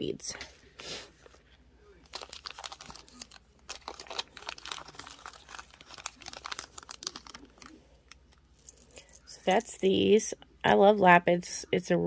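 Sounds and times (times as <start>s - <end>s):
plastic bag crinkling: 2.1s - 9.7s.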